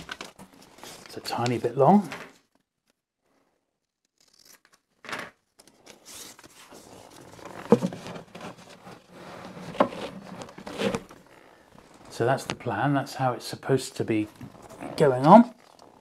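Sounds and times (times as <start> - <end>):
paper tape rustling on cardboard: 5.6 - 11.2.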